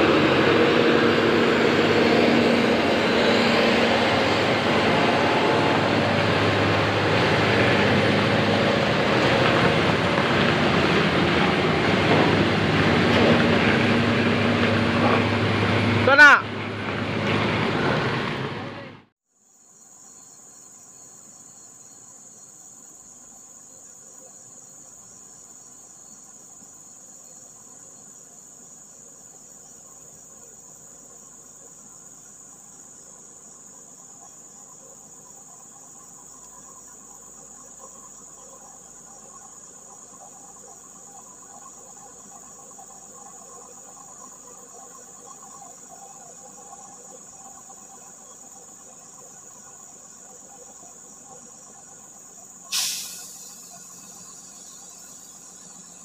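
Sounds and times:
insects droning: 0:00.0 - 0:17.0, 0:18.7 - 0:56.0
distant truck engine: 0:00.0 - 0:19.1, 0:51.8 - 0:56.0.

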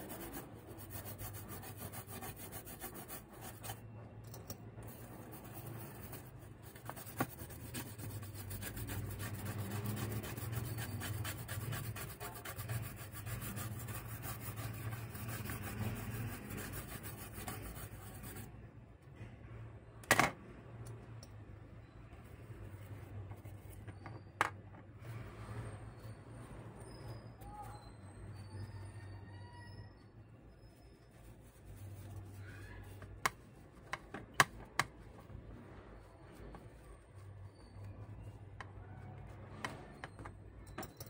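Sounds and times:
brush scrubbing circuit board: 0:00.0 - 0:03.9, 0:04.8 - 0:18.5.

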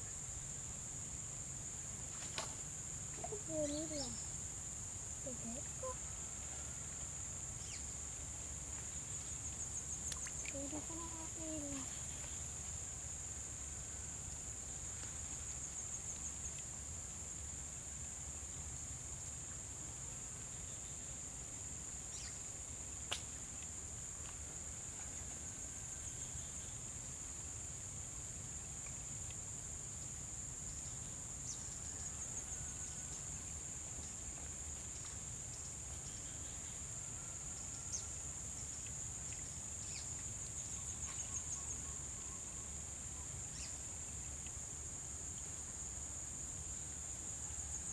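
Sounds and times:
high-pitched insect trilling: 0:02.9 - 0:06.1, 0:07.5 - 0:08.0, 0:22.1 - 0:22.6, 0:34.9 - 0:44.5.

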